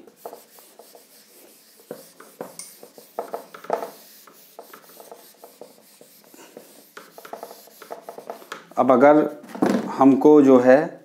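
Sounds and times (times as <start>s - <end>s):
eraser rubbing on whiteboard: 0.0s - 9.4s.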